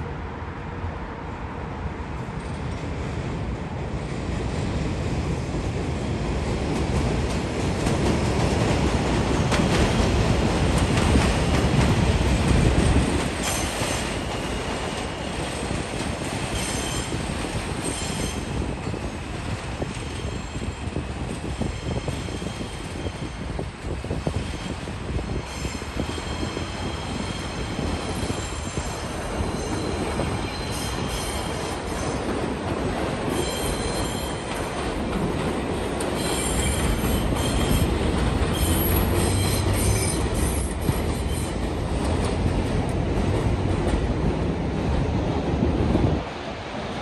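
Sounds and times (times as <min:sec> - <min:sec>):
train rumbling on rails: 0:00.0 - 0:47.0
high wheel squeal: 0:25.3 - 0:32.2, 0:33.3 - 0:34.5, 0:36.2 - 0:41.6.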